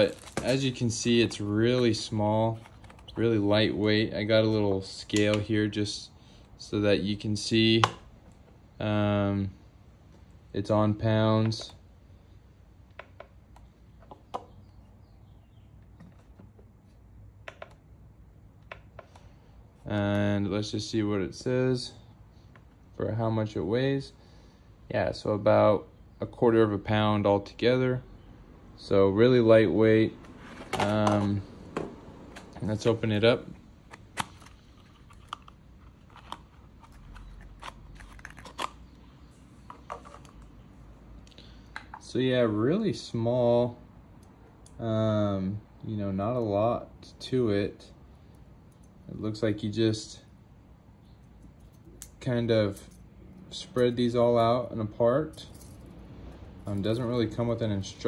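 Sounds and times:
low room hum: 0.0s - 58.0s
faint bird chirps: 13.6s - 16.2s.

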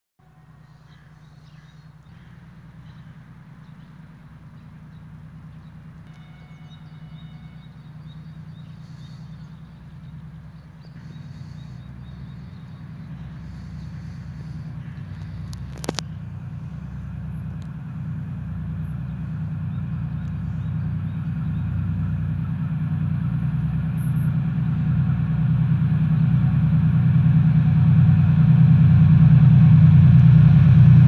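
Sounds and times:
diesel locomotive engine hum: 0.2s - 31.0s
small birds chirping: 0.6s - 17.8s, 18.5s - 22.5s.

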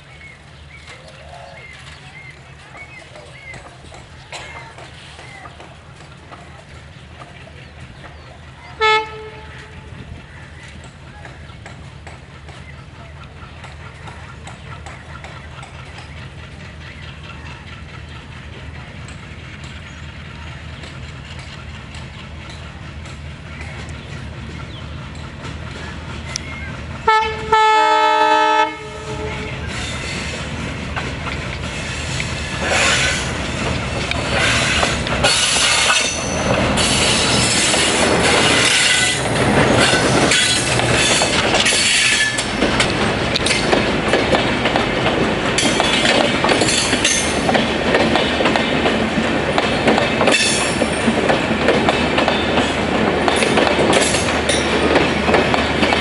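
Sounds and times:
train wheels clacking over rail joints: 0.3s - 56.0s
locomotive horn: 8.7s - 10.0s, 27.0s - 29.7s
metallic wheel squeal: 34.5s - 42.5s.

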